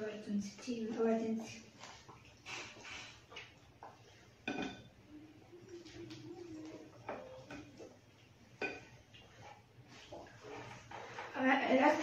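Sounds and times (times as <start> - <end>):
eating noises: 1.4 - 4.4
tableware clinking: 4.4 - 4.9, 8.6 - 8.9.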